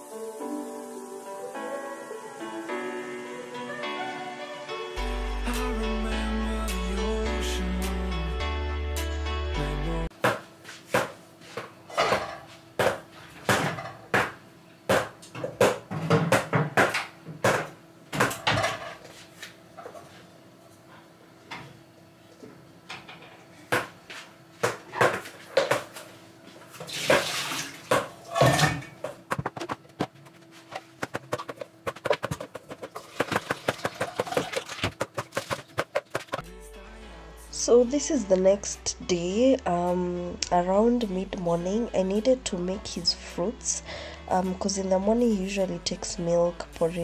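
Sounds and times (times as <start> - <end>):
tap water running: 26.8 - 28.8, 32.9 - 35.6
dishes and cutlery clinking: 28.2 - 29.0
faint steady hum: 36.6 - 47.0.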